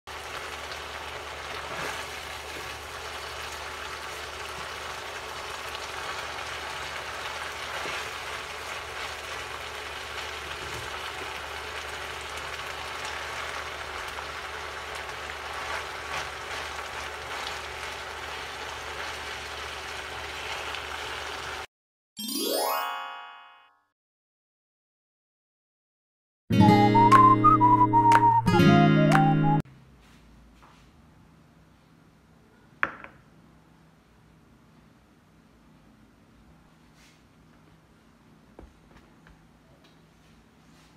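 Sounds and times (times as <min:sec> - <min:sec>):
vegetables sizzling in a frying pan: 0:00.1 - 0:21.7
rising chime jingle: 0:22.2 - 0:23.8.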